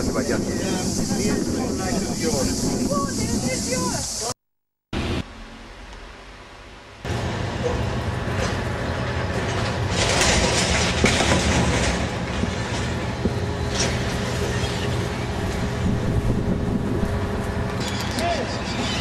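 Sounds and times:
low outdoor rumble: 5.0 - 17.8.

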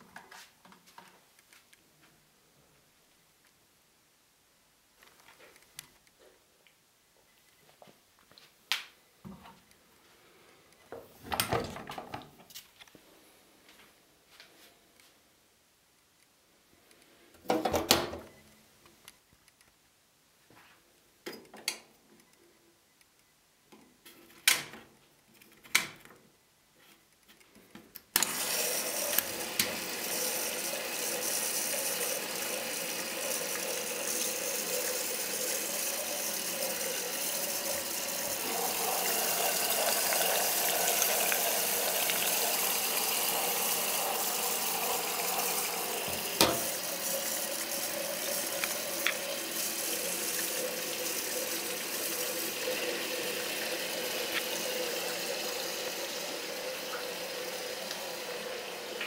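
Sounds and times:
water rushing into washing machine: 28.2 - 59.0.

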